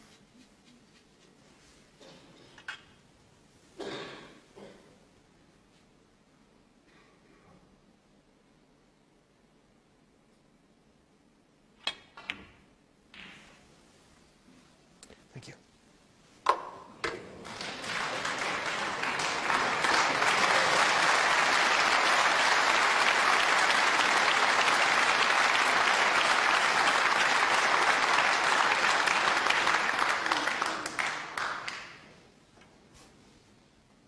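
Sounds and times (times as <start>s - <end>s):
audience applauding: 17.0s - 32.1s.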